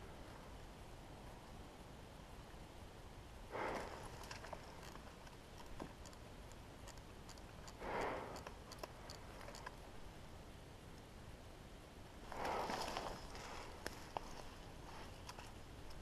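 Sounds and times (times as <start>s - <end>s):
footsteps through dry shrubs: 12.4s - 15.2s.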